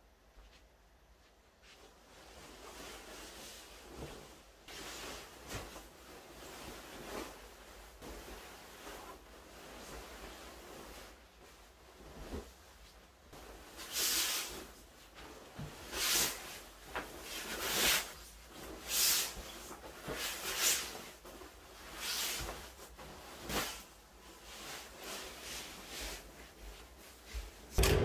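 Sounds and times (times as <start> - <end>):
fabric rustling and flapping: 0.3 - 27.8.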